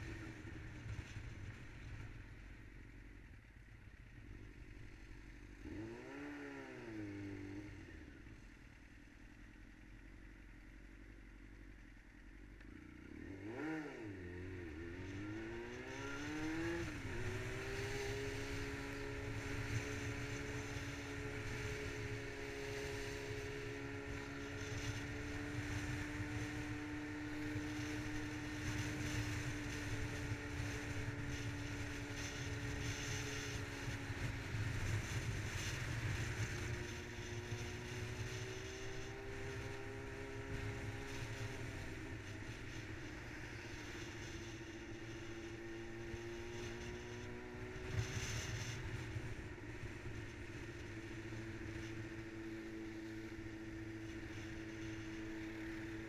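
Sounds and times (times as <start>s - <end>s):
sport bike engine revving: 5.5s - 7.7s, 13.0s - 48.8s.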